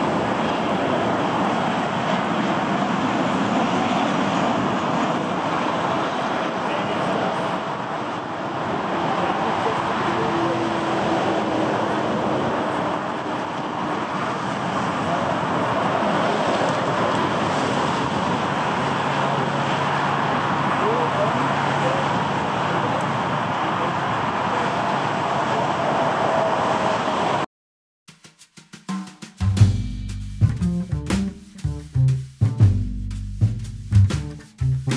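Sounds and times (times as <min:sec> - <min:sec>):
jet engines rushing: 0:00.0 - 0:27.5
wind: 0:00.0 - 0:27.5, 0:29.1 - 0:34.9.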